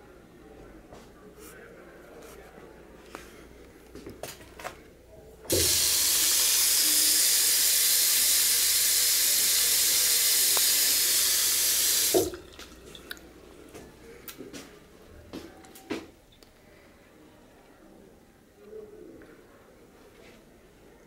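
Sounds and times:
faucet water running: 0:05.5 - 0:13.3.

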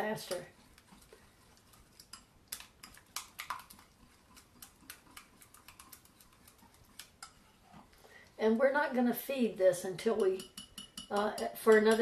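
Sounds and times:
utensil clicking against glass bowl: 0:10.2 - 0:12.0.

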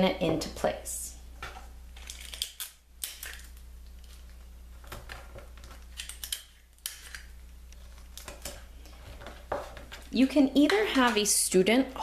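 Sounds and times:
adhesive tape crinkling: 0:02.0 - 0:10.2.

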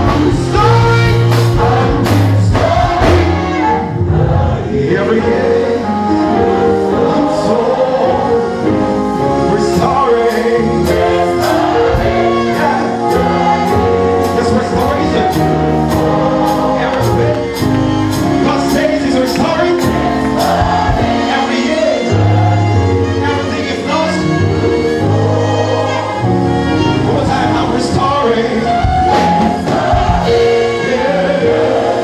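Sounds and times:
man singing lead on microphone: 0:00.0 - 0:03.9, 0:04.7 - 0:17.6
band percussion beat: 0:00.0 - 0:04.3, 0:09.8 - 0:23.5, 0:26.8 - 0:32.0
choir singing: 0:00.0 - 0:32.0.

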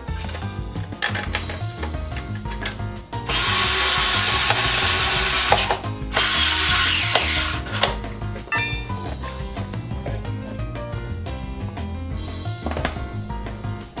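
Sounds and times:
power drill-driver running: 0:03.3 - 0:08.0.

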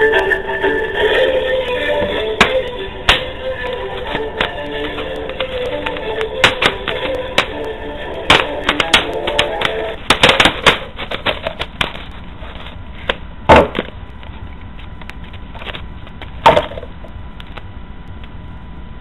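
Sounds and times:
plastic bottle crackling: 0:02.0 - 0:14.0.

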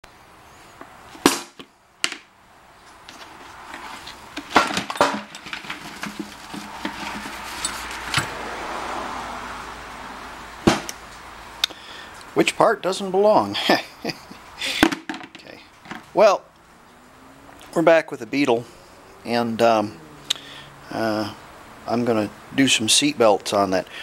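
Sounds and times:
soft rustle: 0:02.7 - 0:04.5, 0:05.3 - 0:08.2
metal parts knocking and clinking: 0:04.4 - 0:08.3.

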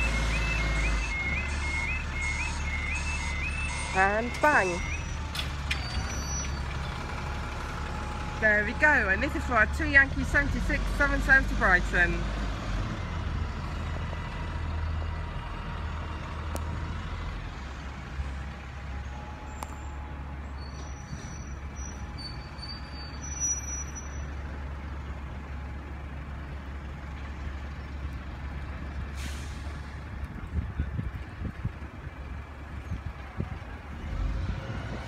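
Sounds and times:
bus engines idling: 0:00.0 - 0:35.0
short high-pitched squeals: 0:03.0 - 0:06.8, 0:20.5 - 0:24.4.

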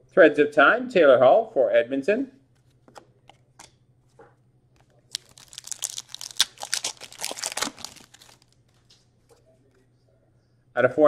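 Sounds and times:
foil wrapper crinkling: 0:04.8 - 0:08.8.

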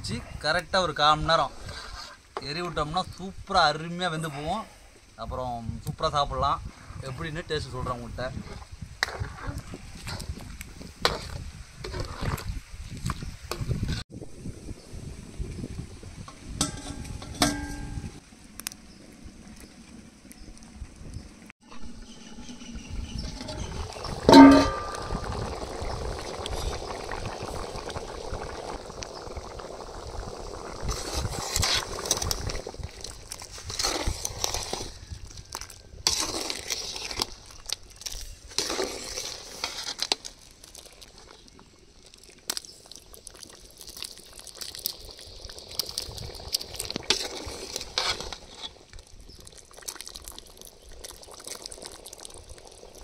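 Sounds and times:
gravy bubbling and sizzling: 0:00.0 - 0:53.0
loud ringing clang: 0:24.3 - 0:25.2.

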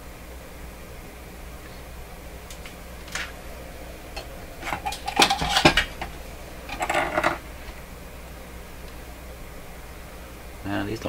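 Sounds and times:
hard objects clinking and clattering: 0:04.2 - 0:07.5.

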